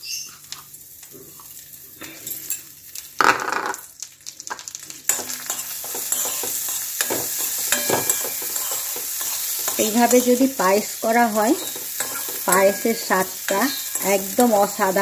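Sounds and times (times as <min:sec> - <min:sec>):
rice sizzling in oil: 0:00.0 - 0:15.0
rice poured into hot oil: 0:00.3 - 0:07.7
metal spoon scraping a pan: 0:05.1 - 0:10.7, 0:11.3 - 0:15.0.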